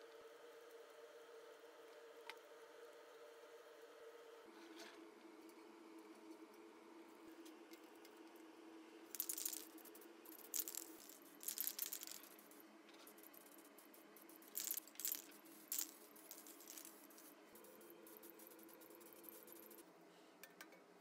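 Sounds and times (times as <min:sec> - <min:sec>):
spray paint can rattling: 0:09.1 - 0:19.8.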